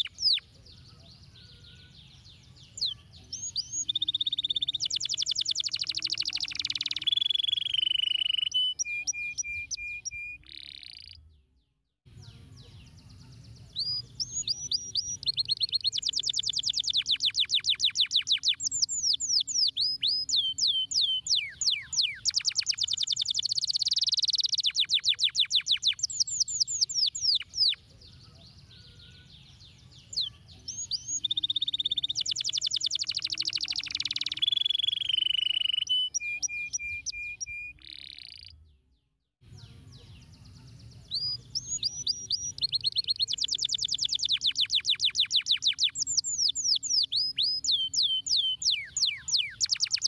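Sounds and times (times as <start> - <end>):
canary singing: 0.0 - 11.3, 12.9 - 38.7, 40.2 - 50.0.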